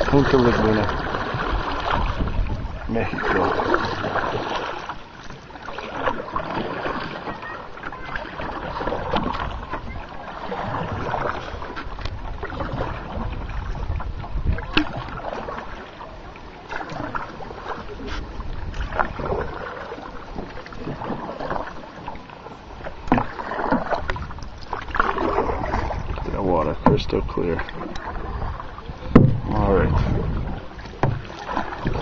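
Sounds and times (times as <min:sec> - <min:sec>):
wind on microphone: 0:00.0 - 0:04.5, 0:08.5 - 0:15.7, 0:16.9 - 0:21.1, 0:23.8 - 0:32.0
water lapping around boat: 0:00.0 - 0:32.0
sharp knocks: 0:29.1 - 0:29.6.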